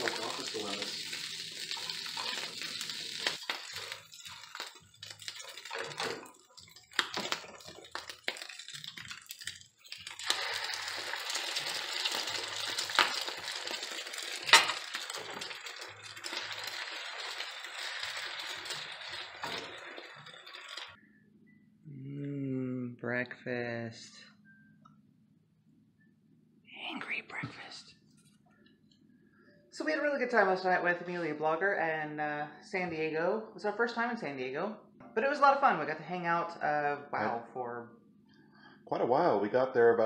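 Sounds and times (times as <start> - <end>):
food sizzling in a pan: 0.0 - 21.0
spatula scraping a pan: 1.7 - 6.2.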